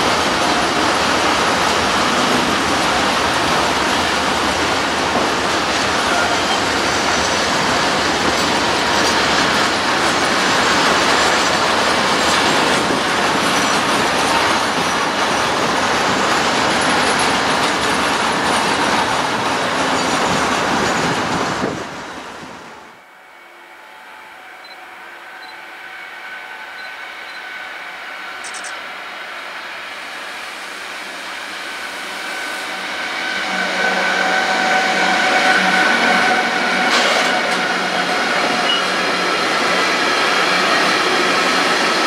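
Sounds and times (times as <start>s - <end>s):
freight wagons rolling on rails: 0.0s - 21.8s
electric locomotive approaching: 0.0s - 42.0s.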